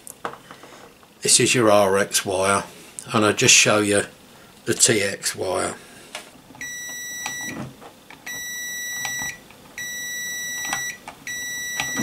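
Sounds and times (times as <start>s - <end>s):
multimeter continuity beeps: 6.6s - 7.6s, 8.3s - 12.0s.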